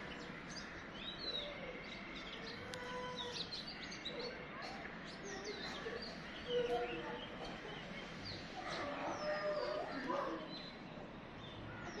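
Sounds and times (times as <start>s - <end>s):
birds chirping and calling: 0.0s - 12.0s.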